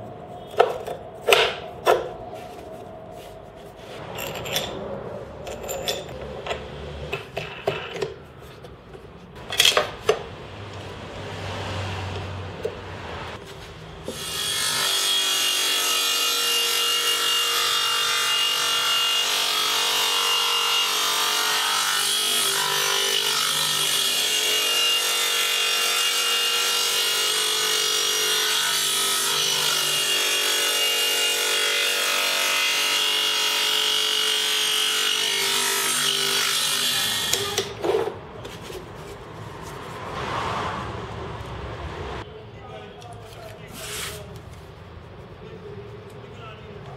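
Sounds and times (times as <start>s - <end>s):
table saw whining: 14.0s - 38.1s.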